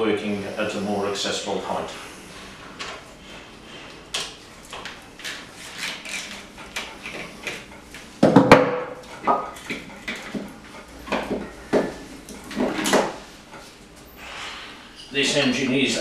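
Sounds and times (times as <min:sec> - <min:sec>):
hand tools knocking on metal: 0:11.1 - 0:13.2.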